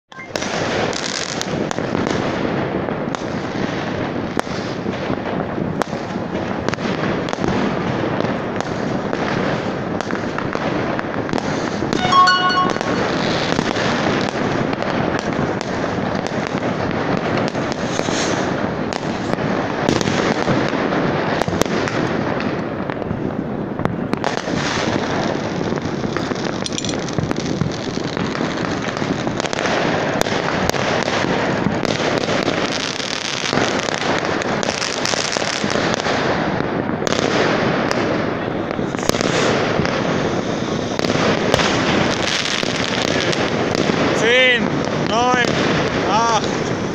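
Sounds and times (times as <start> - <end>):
brief pitched tone: 0.1 - 0.4, 12.0 - 13.6
fireworks crackling and banging: 0.1 - 46.9.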